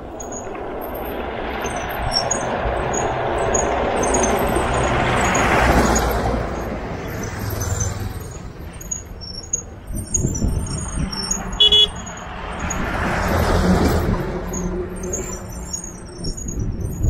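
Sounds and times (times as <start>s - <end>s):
truck driving past: 0.0s - 16.2s
motorcycle engine: 0.6s - 14.2s.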